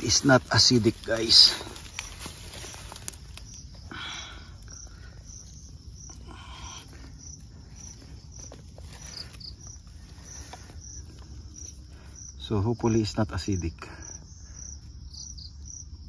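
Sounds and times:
dry grass rustling: 0:00.0 - 0:12.4
insects chirping: 0:00.0 - 0:16.0.

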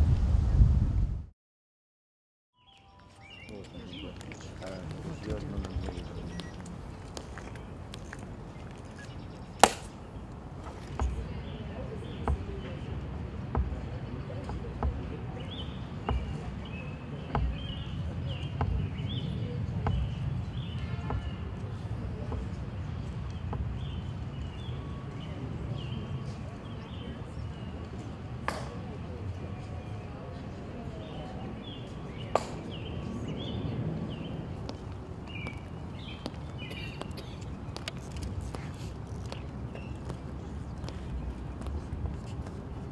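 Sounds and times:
low outdoor rumble: 0:00.0 - 0:01.3
birds chirping: 0:02.6 - 0:42.9
shoes clicking on stone: 0:03.4 - 0:09.9, 0:13.6 - 0:19.2, 0:34.6 - 0:42.9.

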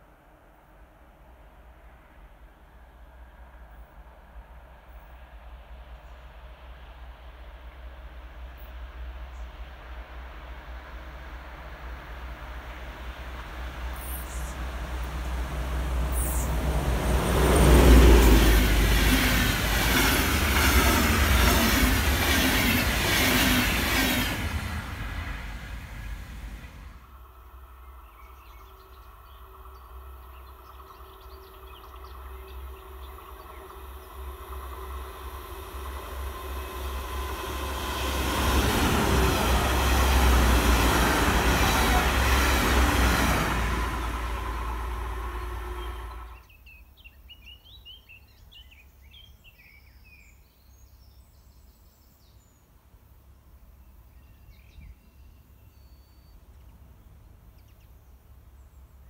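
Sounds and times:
train engine and wheel rumble: 0:00.0 - 0:50.1
birds chirping: 0:36.6 - 0:47.9.

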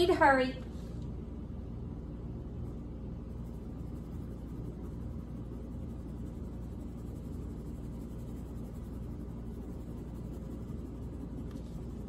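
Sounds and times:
low background hum: 0:00.0 - 0:12.0
crayon scribbling on paper: 0:03.3 - 0:12.0.

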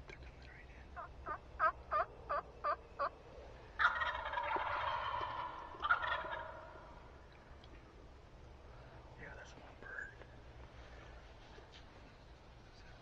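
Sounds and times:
turkey yelping: 0:01.0 - 0:03.1, 0:03.8 - 0:07.0
turkey gobbling: 0:01.0 - 0:03.2, 0:03.8 - 0:07.0.

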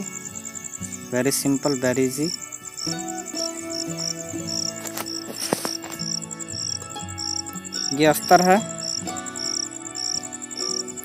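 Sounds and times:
background music sustained notes: 0:00.0 - 0:11.0
crickets chirping: 0:00.0 - 0:11.0
brief rustle: 0:04.8 - 0:06.0.

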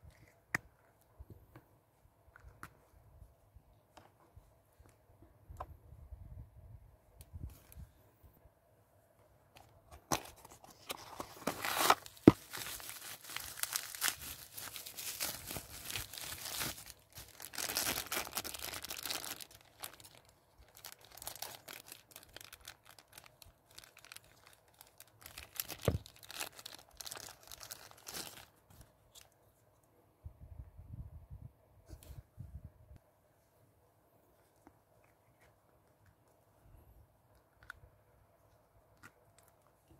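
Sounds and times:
plastic bag crinkling: 0:10.9 - 0:28.6.

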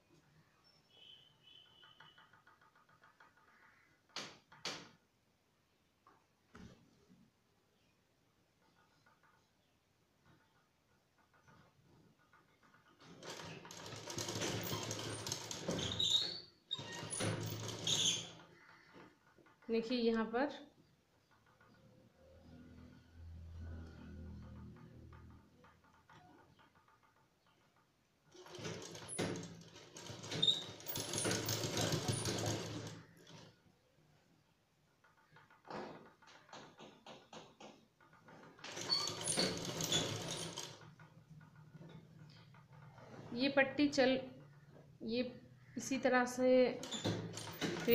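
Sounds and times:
sewing machine stitching: 0:12.4 - 0:19.6, 0:28.3 - 0:33.6, 0:38.2 - 0:43.5, 0:46.8 - 0:47.9.

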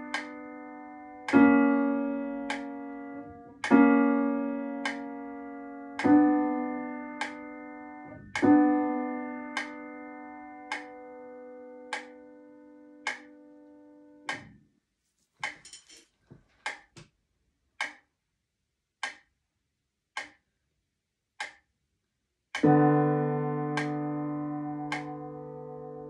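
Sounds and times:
metronome ticking: 0:00.0 - 0:00.6, 0:01.3 - 0:05.4, 0:06.0 - 0:10.0, 0:10.7 - 0:11.1, 0:11.9 - 0:12.3, 0:13.0 - 0:13.4, 0:17.8 - 0:18.1, 0:19.0 - 0:19.3, 0:20.2 - 0:20.4, 0:22.6 - 0:26.0
upright piano playing: 0:00.0 - 0:14.2, 0:22.6 - 0:26.0.

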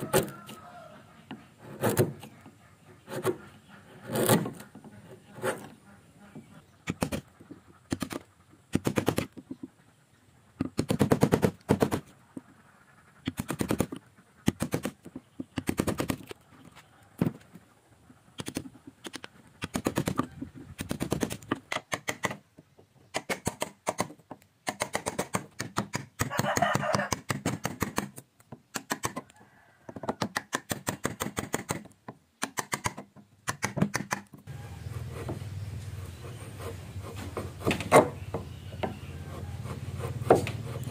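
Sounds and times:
chisel knocking and scraping wood: 0:01.2 - 0:02.4, 0:03.1 - 0:05.7, 0:29.9 - 0:40.9.

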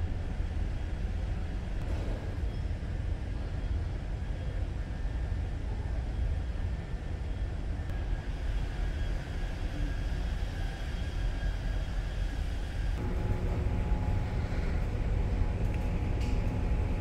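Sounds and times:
ship engines droning: 0:06.7 - 0:17.0.

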